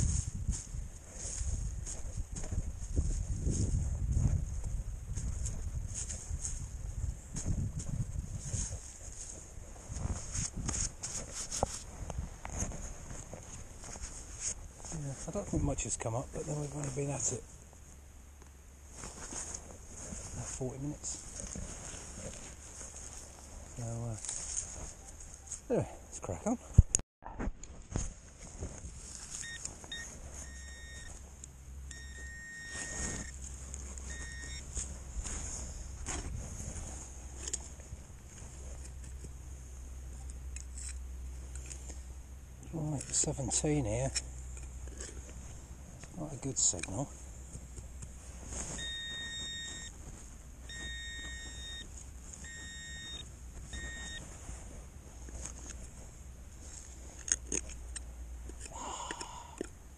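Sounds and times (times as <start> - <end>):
soil and grass rustling: 0.0 - 59.9
metal detector beeping tone: 29.4 - 31.2, 31.9 - 33.4, 34.0 - 34.7, 48.6 - 50.0, 50.6 - 54.3.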